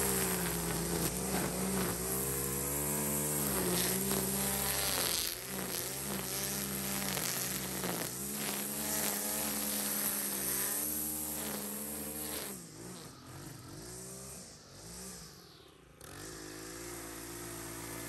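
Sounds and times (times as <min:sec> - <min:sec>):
string trimmer cutting grass: 0:00.0 - 0:18.0.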